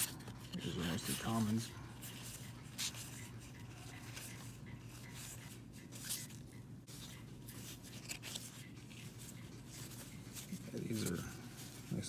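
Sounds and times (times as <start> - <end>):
cardboard cards rubbing and flicking: 4.1 - 12.0.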